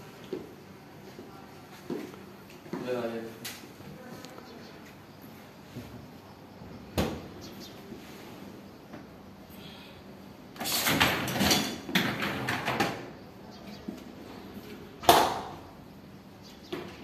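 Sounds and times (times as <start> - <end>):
dishwasher racks rattling: 10.6 - 13.1.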